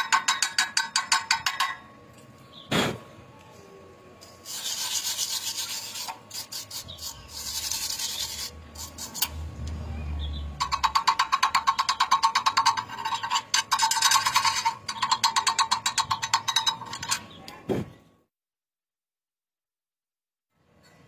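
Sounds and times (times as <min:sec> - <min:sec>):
scraping slag off weld: 0:04.2 - 0:09.4.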